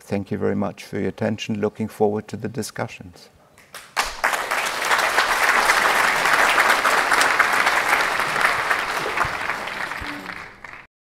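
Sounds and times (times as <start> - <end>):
audience applauding: 4.0 - 10.9.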